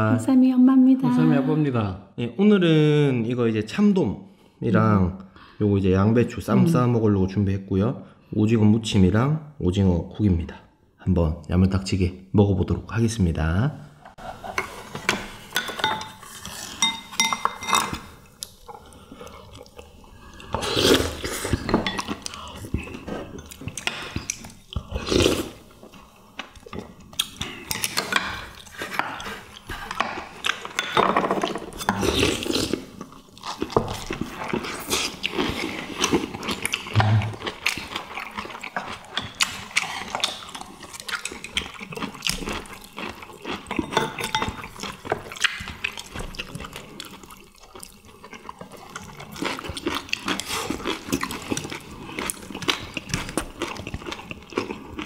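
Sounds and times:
people chewing: 0:14.2 - 0:55.0
slurping soup: 0:18.6 - 0:30.6, 0:31.7 - 0:55.0.

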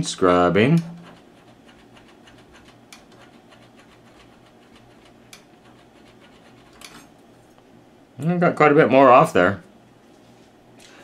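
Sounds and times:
cotton swab scratching: 0:00.8 - 0:06.9.

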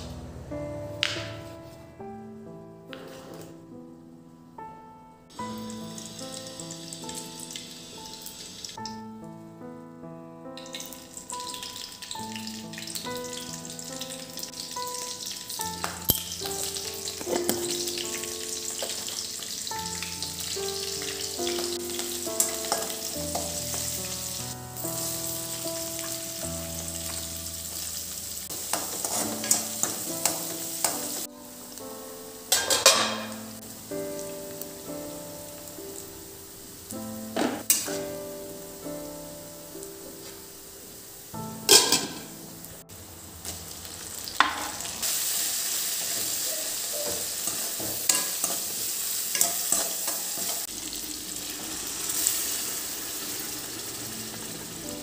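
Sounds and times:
soft instrumental music: 0:00.0 - 0:42.9
seeds sizzling in hot oil: 0:05.3 - 0:09.0, 0:10.6 - 0:55.0.

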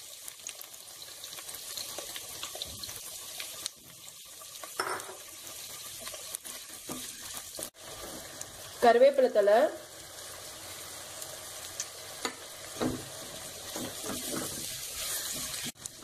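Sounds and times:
onions sizzling in hot oil: 0:00.0 - 0:16.0
wooden spatula knocking and scraping: 0:12.8 - 0:15.7.

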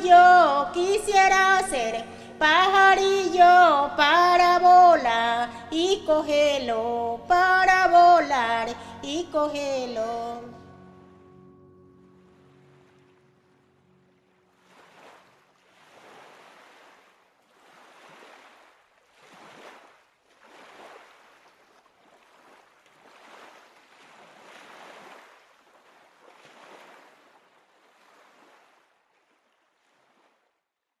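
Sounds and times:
waves washing onto shore: 0:14.5 - 0:30.2.

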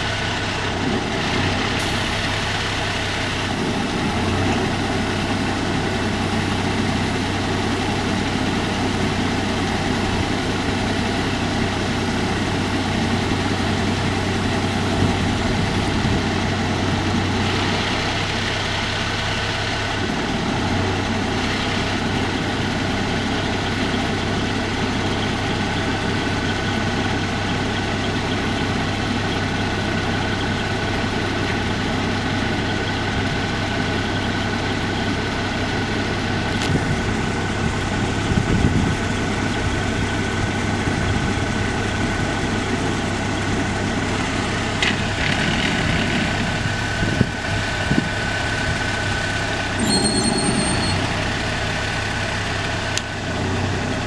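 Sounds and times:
diesel truck engine idling: 0:00.0 - 0:54.0
faint high whine: 0:49.8 - 0:51.2.

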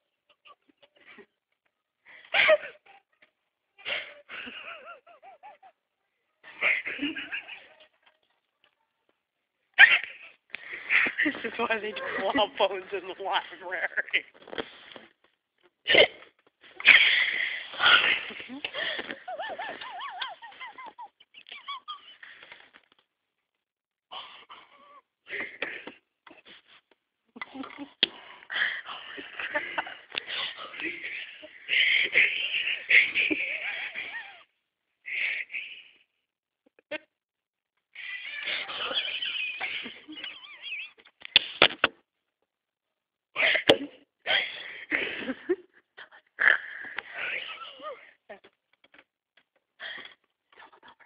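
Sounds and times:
stifled wheezing laughter: 0:00.0 - 0:01.4, 0:02.1 - 0:08.1, 0:09.8 - 0:12.2, 0:16.1 - 0:22.7, 0:24.1 - 0:36.0, 0:38.0 - 0:41.2, 0:43.4 - 0:48.2.

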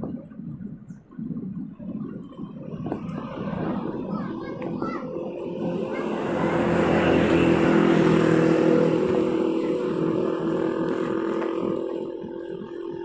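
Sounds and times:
tyre and wind noise: 0:00.0 - 0:13.0
vehicle engine passing: 0:03.2 - 0:13.0.

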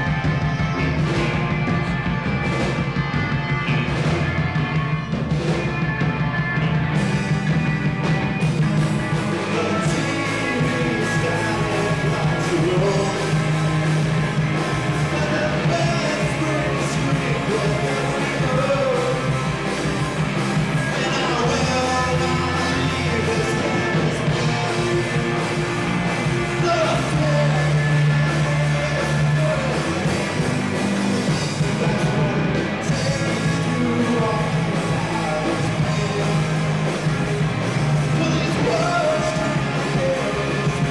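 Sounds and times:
live rock band playing: 0:00.0 - 0:40.9
lead vocalist singing: 0:08.4 - 0:19.7, 0:20.6 - 0:37.2, 0:37.8 - 0:40.9.

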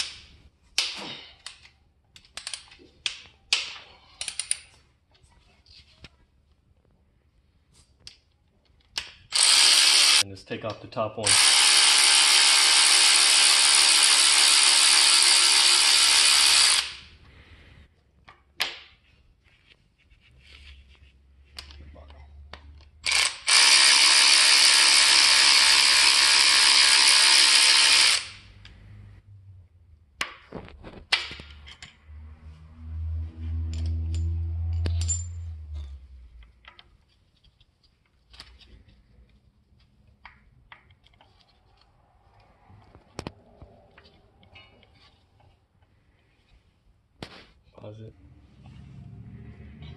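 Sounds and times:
metallic clicks of hand tools: 0:00.8 - 0:04.7
electric ratchet running: 0:09.3 - 0:10.2, 0:11.3 - 0:17.1, 0:23.0 - 0:28.5.

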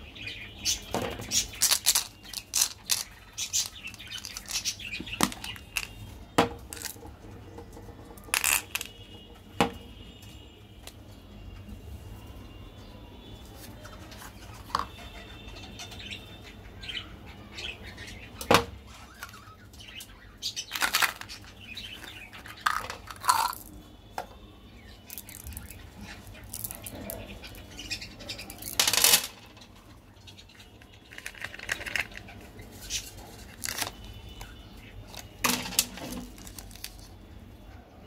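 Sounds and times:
candy pieces clicking and rattling: 0:01.2 - 0:06.0, 0:06.7 - 0:07.0, 0:08.2 - 0:09.0, 0:20.7 - 0:23.8, 0:25.1 - 0:27.0, 0:28.6 - 0:29.4, 0:31.1 - 0:32.3, 0:33.4 - 0:34.1, 0:35.1 - 0:37.1.

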